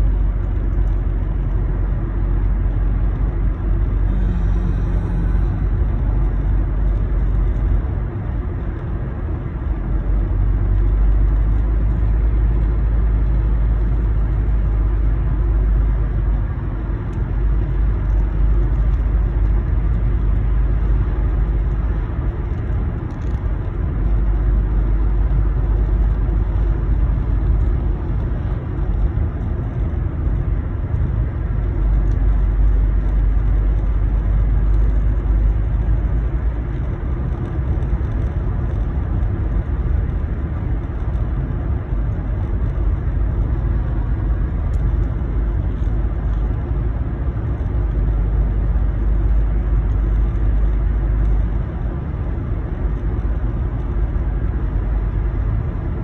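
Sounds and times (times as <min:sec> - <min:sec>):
car cabin road noise: 0:00.0 - 0:56.0.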